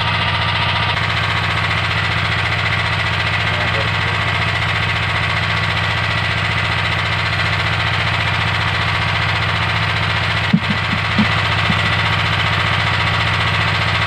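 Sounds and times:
boat engine running: 8.6s - 14.0s.

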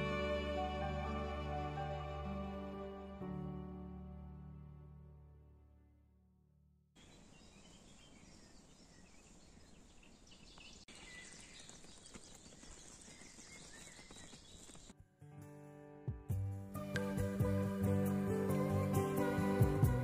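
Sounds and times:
distant bird calls: 7.0s - 14.9s.

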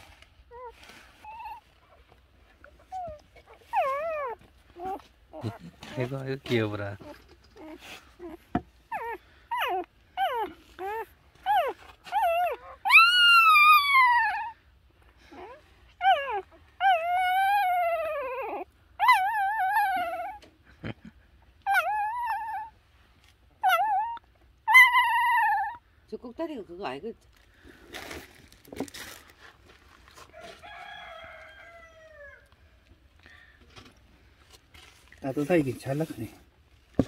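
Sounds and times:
puppies crying: 2.8s - 14.7s, 15.3s - 20.5s, 21.6s - 22.8s, 23.6s - 25.8s.

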